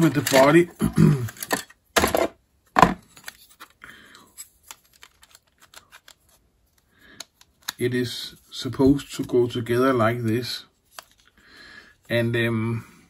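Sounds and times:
plastic parts clicking: 0.0s - 3.8s, 4.4s - 7.8s.

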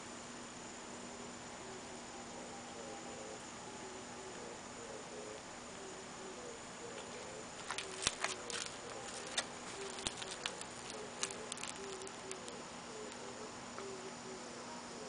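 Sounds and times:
faint steady hum: 0.0s - 15.0s
light irregular clicks and pattering: 7.0s - 13.3s.

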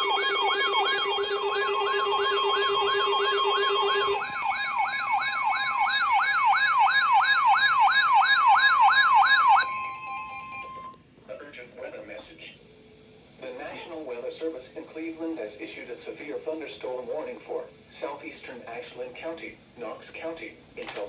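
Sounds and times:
steady high alert tone: 0.0s - 11.0s
warbling siren tone: 0.0s - 11.0s.

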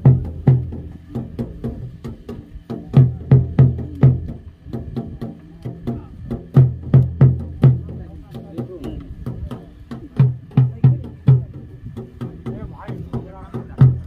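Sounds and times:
drums beating a rhythm: 0.0s - 14.0s.

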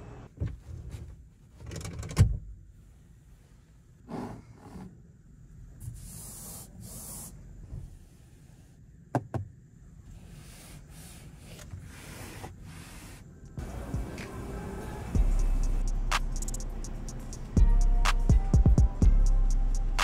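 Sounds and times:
hand rubbing car door panel: 10.3s - 13.2s.

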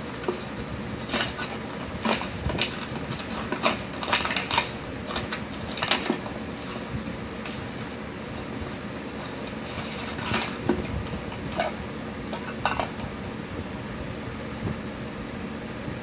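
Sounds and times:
plastic cups clicking and knocking: 9.3s - 13.2s.

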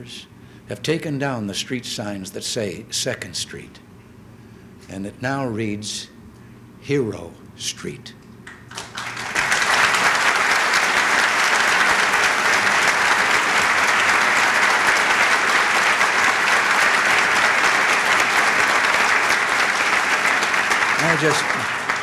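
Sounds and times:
audience applauding: 8.5s - 22.0s.

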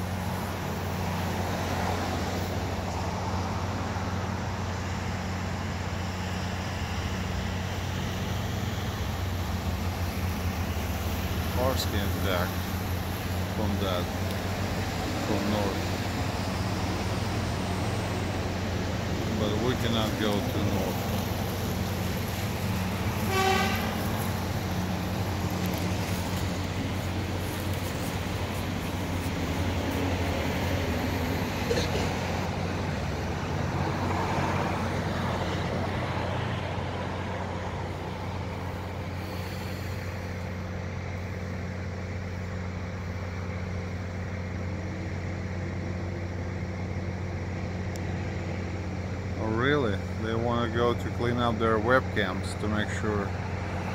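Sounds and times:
vehicle engine idling: 0.0s - 53.9s
short horn toot: 23.2s - 24.3s.

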